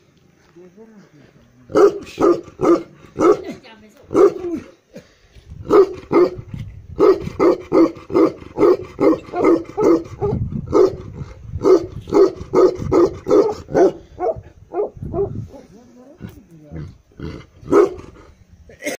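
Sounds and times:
dog barking deeply: 1.7 - 4.7, 5.6 - 15.8, 17.2 - 18.3.

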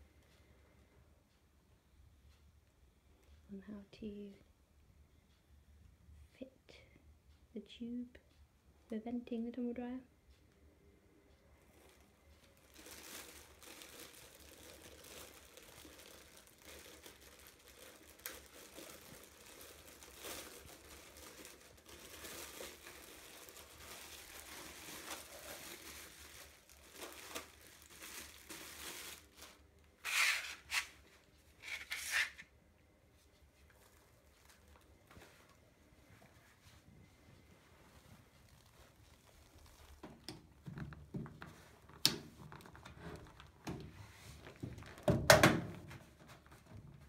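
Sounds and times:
plastic wrapping crinkling and tearing: 11.7 - 32.5, 33.3 - 35.5, 37.8 - 47.0.

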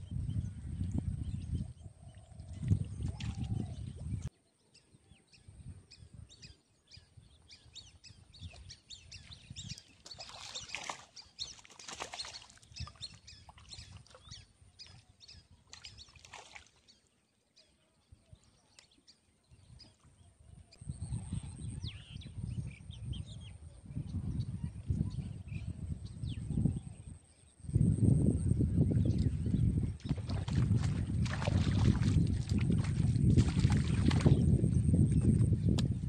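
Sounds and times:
small birds chirping: 0.0 - 36.0
microphone handling rumble: 27.8 - 36.0.

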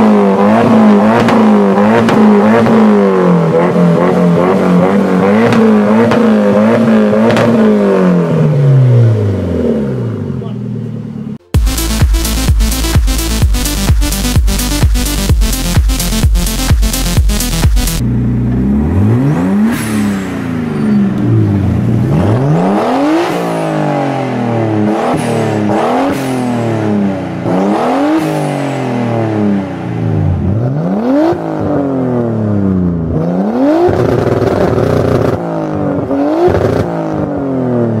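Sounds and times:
car engine revving: 0.0 - 38.0
electronic music: 11.5 - 18.0.

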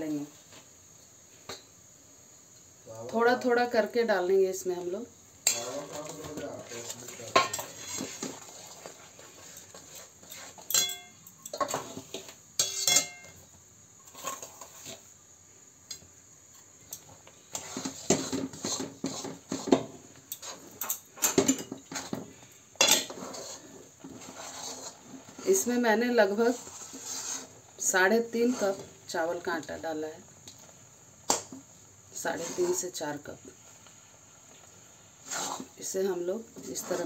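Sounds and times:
metal spoon scraping in pan: 5.4 - 13.4, 14.0 - 15.1, 16.9 - 29.0, 32.2 - 37.0
measuring cup clinking against metal pan: 10.7 - 11.2, 12.6 - 13.3.

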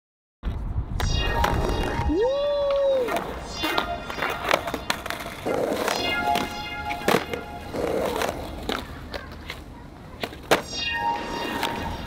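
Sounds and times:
skateboard wheels rolling: 1.3 - 12.0
skateboard clacks and impacts: 4.2 - 10.7.

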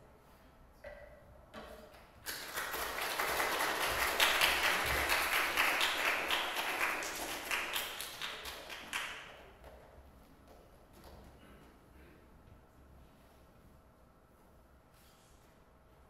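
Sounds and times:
audience applauding: 2.3 - 9.2.

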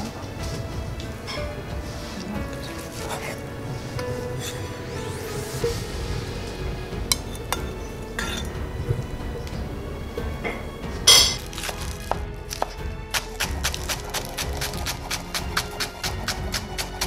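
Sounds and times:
knife chopping on wooden board: 11.2 - 17.0.

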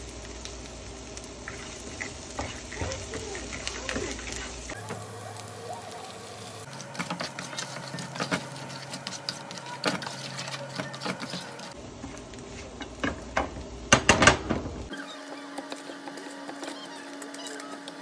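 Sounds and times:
food sizzling in a frying pan: 0.0 - 18.0
spatula scraping and knocking pan: 1.4 - 5.0, 6.7 - 14.9.

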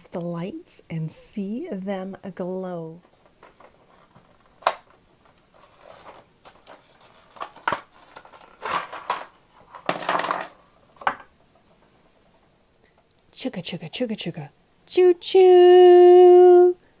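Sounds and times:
plastic blister pack crinkling: 3.0 - 11.3.

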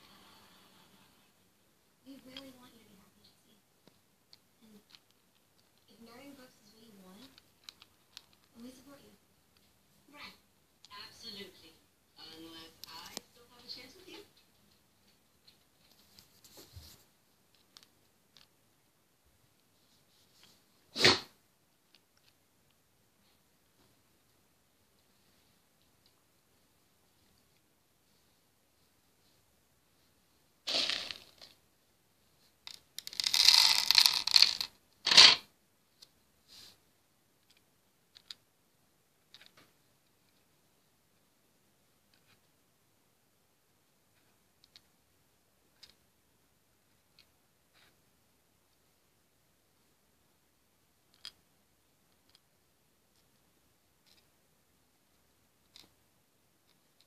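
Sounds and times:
plastic beads clicking: 7.2 - 8.5, 30.7 - 31.6, 32.6 - 35.4, 37.4 - 38.4, 45.7 - 46.0, 51.1 - 51.4
rustling scraping handling noise: 32.7 - 35.4.

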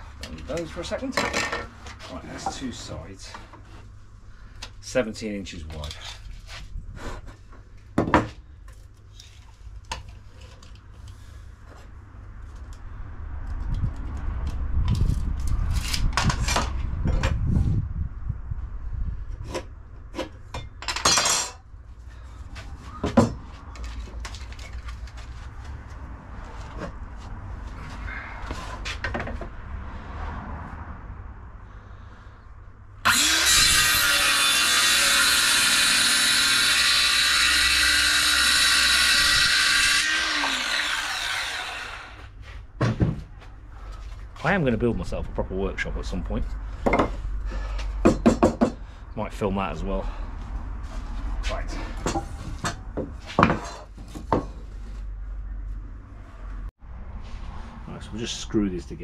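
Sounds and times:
circular saw cutting timber: 33.0 - 42.4
knocks of timber being handled: 42.8 - 43.4, 48.0 - 48.8.

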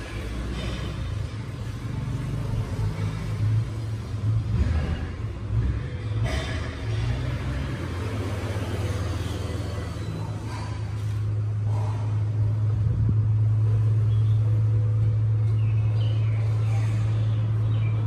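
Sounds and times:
steady low rumble: 8.8 - 18.0.

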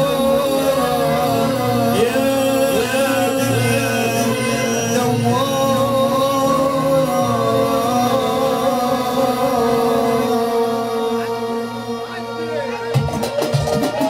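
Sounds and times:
bass and percussion: 12.9 - 14.0.

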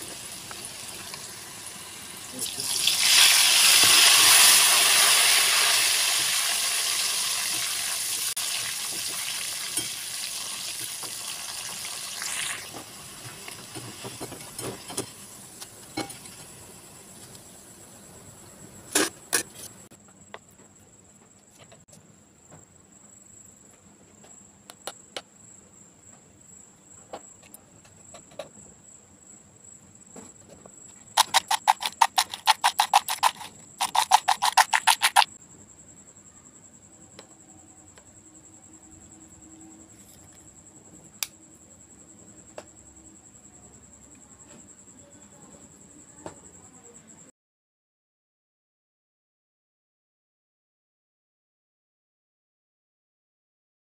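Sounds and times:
slices deep-frying in hot oil: 0.0 - 17.7, 31.2 - 35.3
chips rattling in plastic bowl: 31.2 - 35.3.

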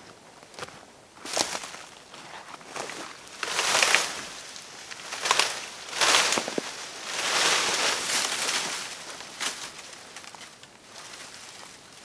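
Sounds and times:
branches rustling through undergrowth: 0.0 - 12.0
twigs snapping and crackling: 2.7 - 11.8.

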